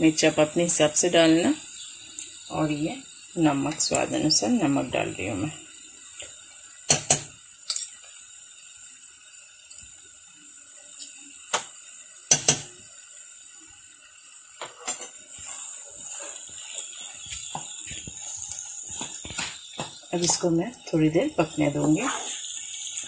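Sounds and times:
spatula knocking pan: 6.9 - 7.8, 12.3 - 12.8
spatula scraping mashed potato: 14.7 - 20.0.

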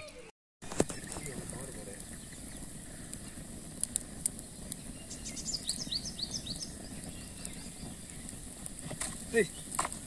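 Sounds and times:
fire popping: 0.2 - 10.0
wood fire crackling: 0.6 - 10.0
bird chirping: 0.9 - 3.4, 4.3 - 8.5, 9.4 - 9.8.

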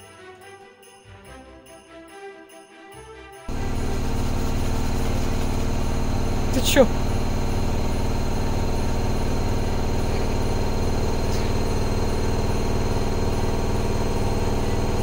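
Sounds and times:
washing machine humming: 3.5 - 15.0.

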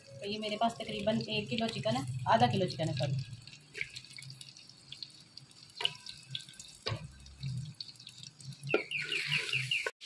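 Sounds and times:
spoon squeaking in pot: 8.6 - 9.9.

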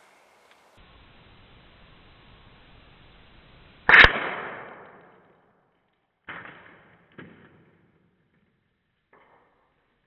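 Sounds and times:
air rifle shot: 3.8 - 5.2.

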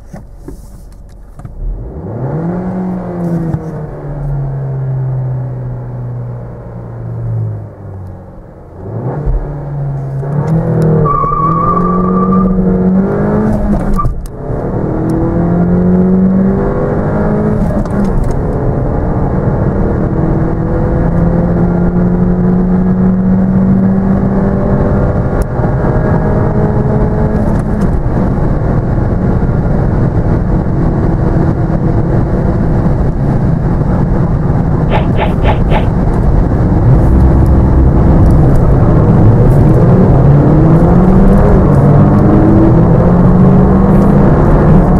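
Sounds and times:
car engine accelerating through gears: 1.5 - 44.9.

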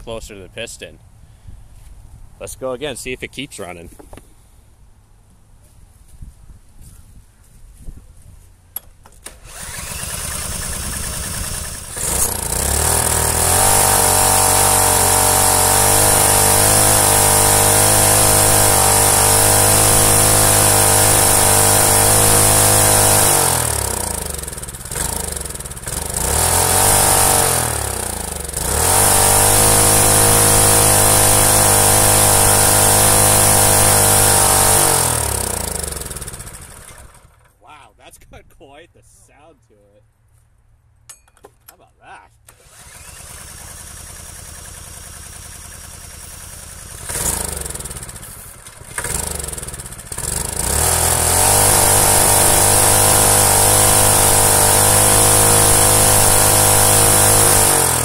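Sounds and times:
cordless drill spinning: 9.2 - 37.1, 42.5 - 44.3
small engine running: 9.2 - 37.5, 42.5 - 58.0.

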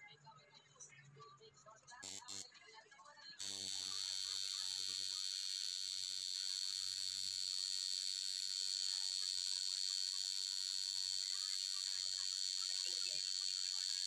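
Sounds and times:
tattoo machine buzzing: 2.0 - 2.5, 3.4 - 14.0.

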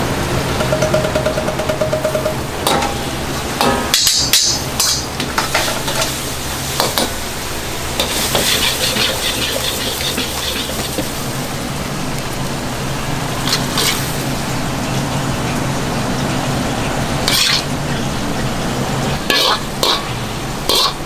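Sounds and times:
gas burner hum: 0.0 - 21.0
metal ladle clanging on wok: 0.6 - 6.1, 19.3 - 20.1
food sizzling: 4.5 - 15.6.

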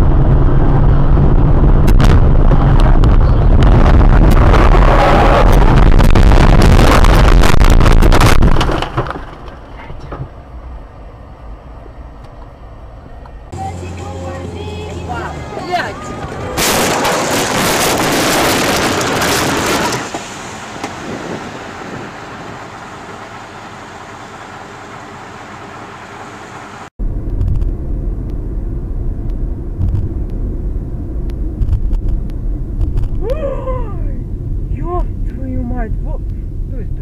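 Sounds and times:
loud rushing noise: 0.0 - 8.6, 15.3 - 22.6
car road and engine rumble: 0.0 - 37.0.

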